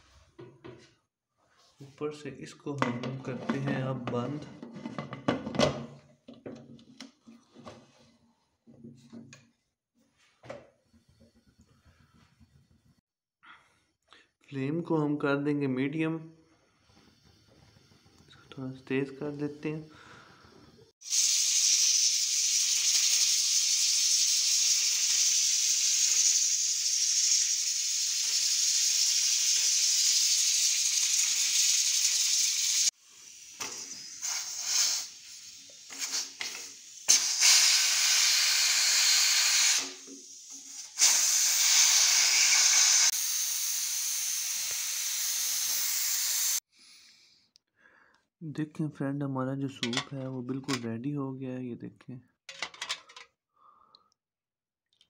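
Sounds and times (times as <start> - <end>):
pressure cooker hissing steam: 16.7 - 18.6, 20.3 - 46.7.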